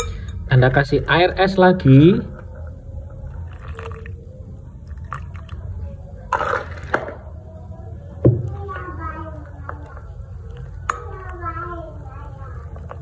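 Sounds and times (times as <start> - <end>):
water pouring into bowl: 2.2 - 5.8.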